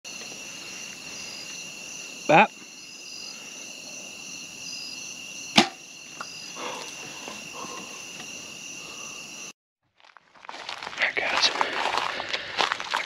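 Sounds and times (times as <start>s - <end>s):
crickets and insects chirping: 0.1s - 13.0s
bow string crack: 5.5s - 5.8s.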